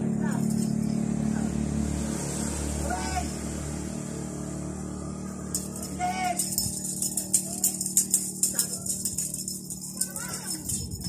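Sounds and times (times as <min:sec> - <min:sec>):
light clicking and rattling: 0:05.5 - 0:11.0.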